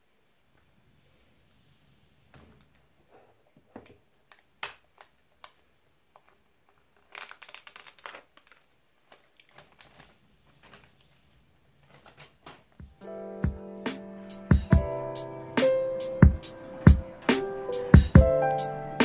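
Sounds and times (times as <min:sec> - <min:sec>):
plastic wrap crinkling and tearing: 0:04.2 - 0:11.2.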